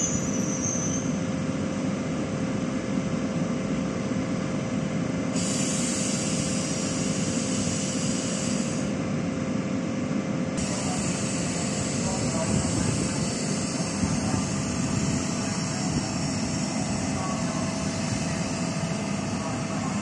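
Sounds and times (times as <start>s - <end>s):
constant hum: 0.0s - 20.0s
hiss: 5.3s - 9.0s, 10.6s - 14.4s
train rumble: 10.6s - 20.0s.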